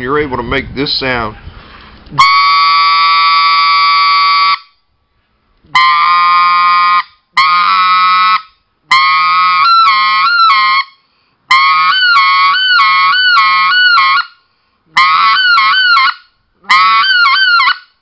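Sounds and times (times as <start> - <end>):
goose call notes: 14.9 - 17.8.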